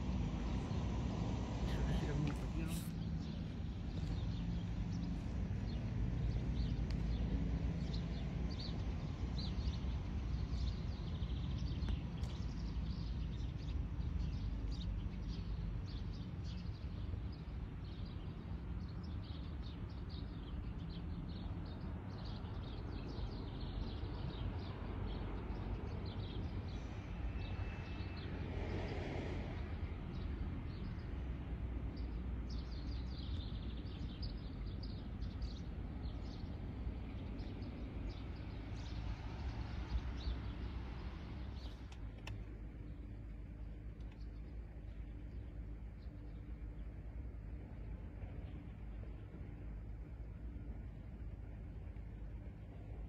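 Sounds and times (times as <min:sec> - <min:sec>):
steady low rumble: 0:28.5 - 0:53.0.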